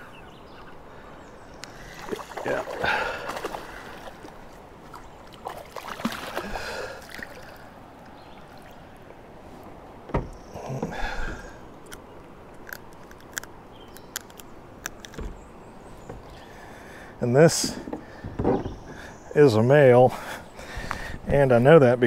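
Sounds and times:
fish splashing at water surface: 5.4s - 7.6s
fishing gear clicking against kayak: 10.2s - 16.4s.

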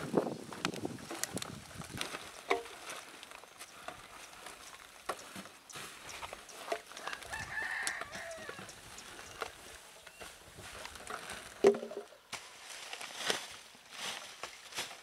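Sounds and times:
plastic sacks rustling: 0.0s - 15.0s
rooster crowing: 7.0s - 8.8s.

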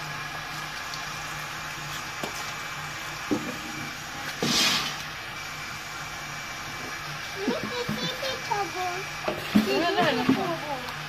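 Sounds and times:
water splash: 4.3s - 5.1s.

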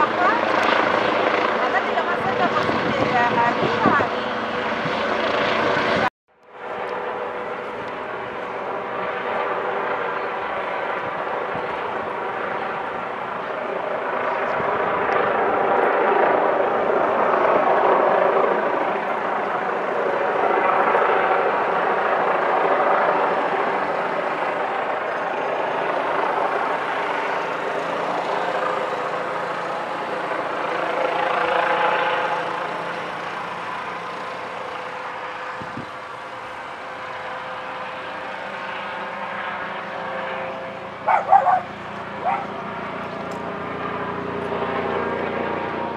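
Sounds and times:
helicopter flying overhead: 0.0s - 45.9s.

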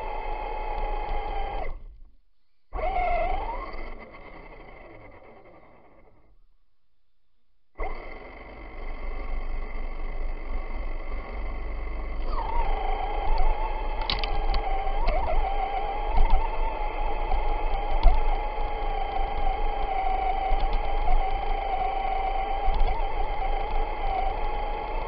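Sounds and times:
electric motor whining: 0.0s - 2.0s, 2.7s - 6.3s, 7.8s - 25.0s.

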